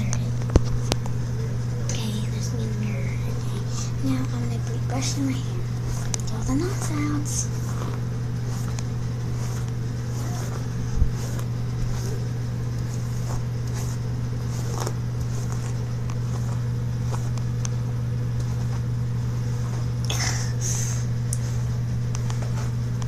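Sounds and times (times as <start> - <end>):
low hum: 0.0 - 23.0
hairbrush strokes through wet hair: 5.0 - 17.6, 18.3 - 20.0.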